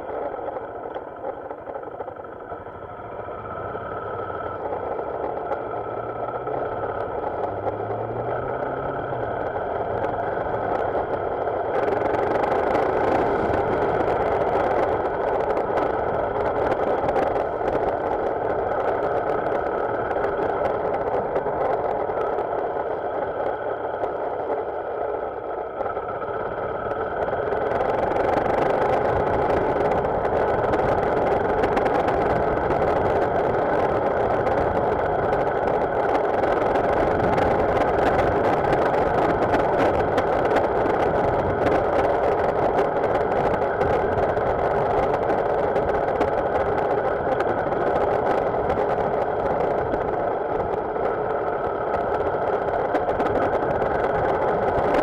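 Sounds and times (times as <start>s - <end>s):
motorcycle engine running: 0.0s - 55.0s
road and wind rush: 0.0s - 55.0s.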